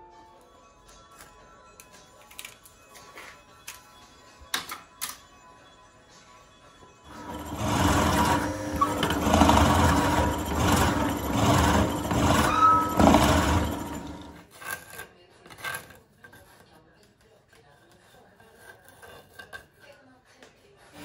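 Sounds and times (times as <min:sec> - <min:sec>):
drill press boring into wood: 0:07.1 - 0:14.4.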